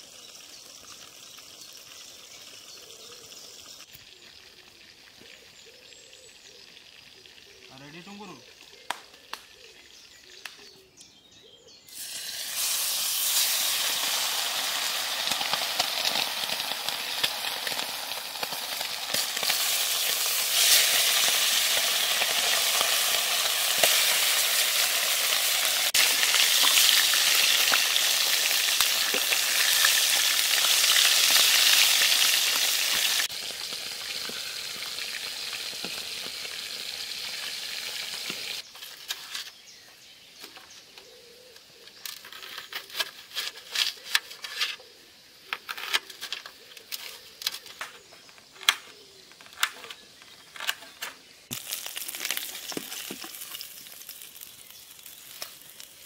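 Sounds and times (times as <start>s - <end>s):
fish sizzling in hot oil: 0.0s - 5.4s, 11.9s - 38.7s, 51.5s - 56.0s.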